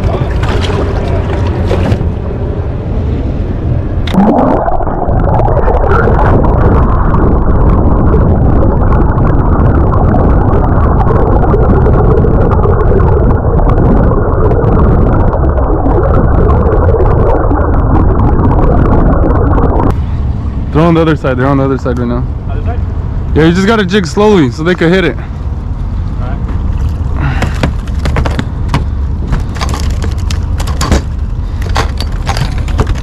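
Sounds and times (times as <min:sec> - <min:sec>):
muffled underwater gurgling: 0:00.0 - 0:20.0.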